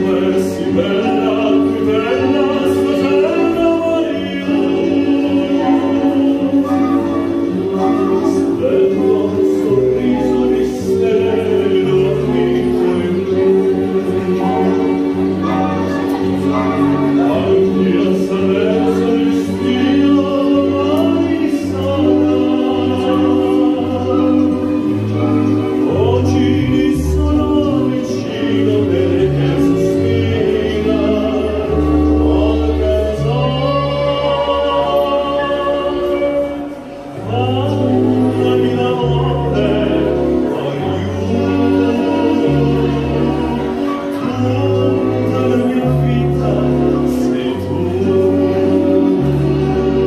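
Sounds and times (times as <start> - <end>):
backing music: 0.0 - 50.0
man singing into microphone: 0.0 - 50.0.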